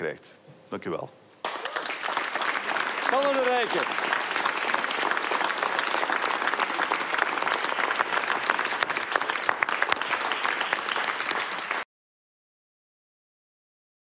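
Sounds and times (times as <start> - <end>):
audience applauding: 1.4 - 11.9.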